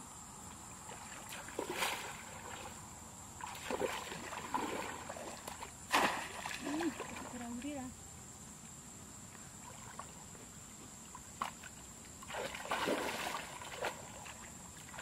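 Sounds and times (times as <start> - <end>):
water sloshing and splashing: 0.8 - 7.8, 9.6 - 10.3, 11.0 - 15.0.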